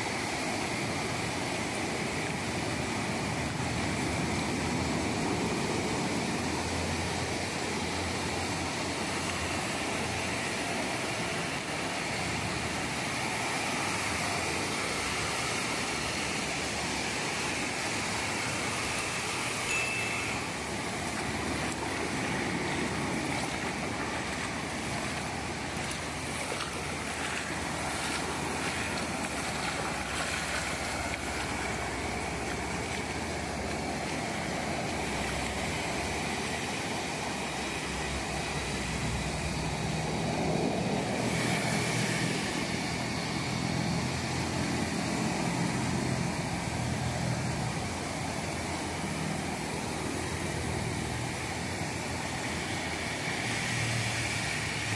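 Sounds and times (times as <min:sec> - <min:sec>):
low engine hum: 0:00.1 - 0:54.9
ocean surf breaking: 0:01.9 - 0:38.1.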